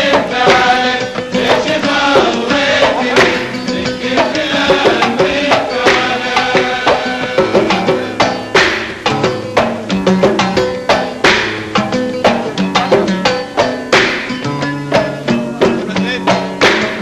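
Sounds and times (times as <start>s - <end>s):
men's chorus singing: 0.0s - 8.8s
percussion: 0.0s - 17.0s.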